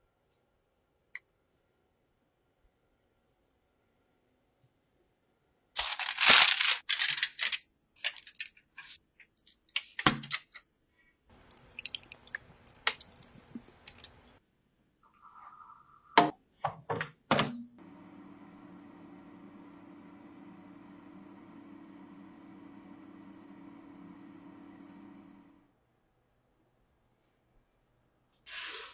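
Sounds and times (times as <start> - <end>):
water pouring into tray: 11.3 - 14.2
oven fan humming: 17.8 - 25.7.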